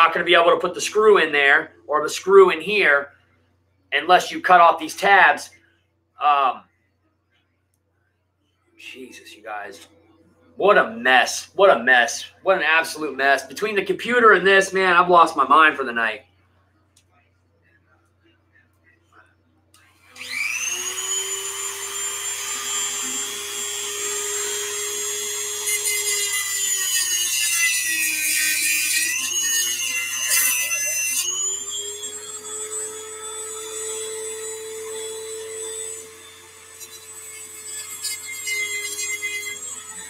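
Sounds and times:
rotary tool whining: 19.8s - 40.0s.

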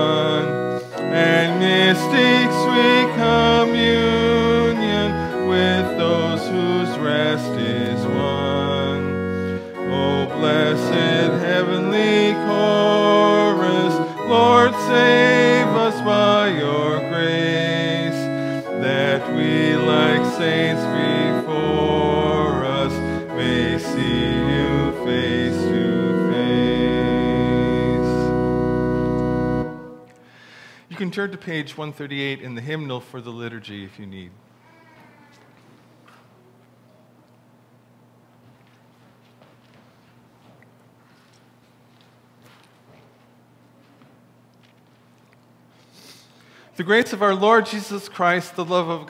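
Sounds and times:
church organ chords: 0.0s - 30.8s, 46.4s - 49.0s.

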